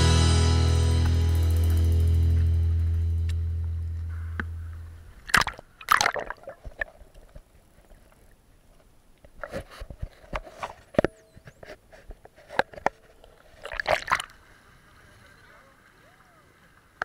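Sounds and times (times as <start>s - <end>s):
seawater sloshing and splashing: 5.2s - 8.3s, 13.4s - 16.9s.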